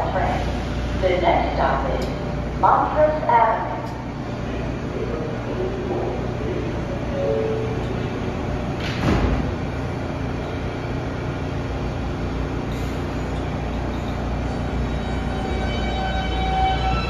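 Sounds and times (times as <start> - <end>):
low hum of train cars: 0.0 - 17.0
traction motors whining: 0.0 - 17.0
train doors sliding shut: 7.0 - 10.0.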